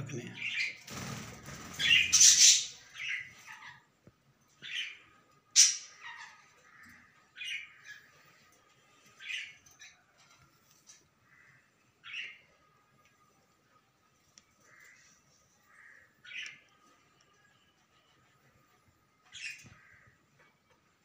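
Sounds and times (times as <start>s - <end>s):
budgerigar squawking and chirping: 1.8s - 3.8s.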